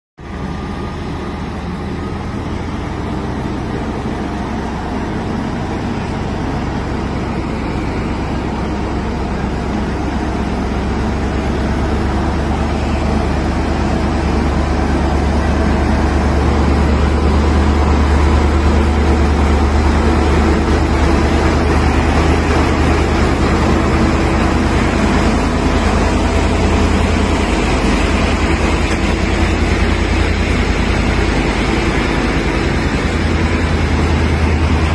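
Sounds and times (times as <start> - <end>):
crane diesel engine rumbling: 0.2 - 34.9.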